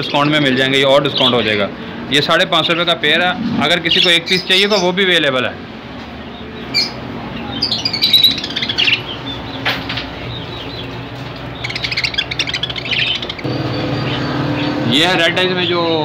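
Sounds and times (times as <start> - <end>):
budgerigars chirping and twittering: 0.0 - 5.4, 6.1 - 16.0
steady low hum: 1.7 - 4.7.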